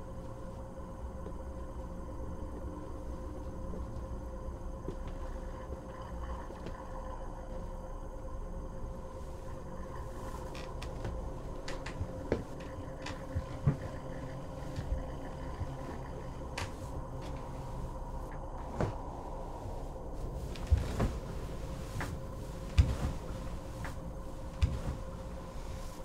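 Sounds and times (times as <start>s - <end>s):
low hum: 0.0s - 26.0s
soft knocks and thumps: 20.5s - 25.2s.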